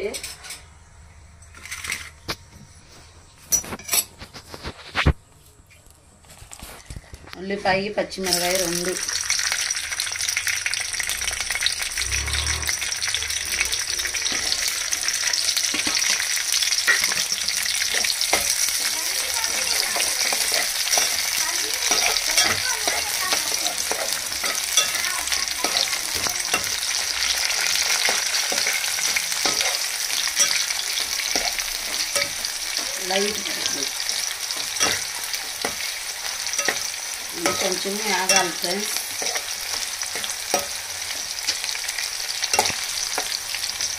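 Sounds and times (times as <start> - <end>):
onions sizzling in hot oil: 7.6 - 43.9.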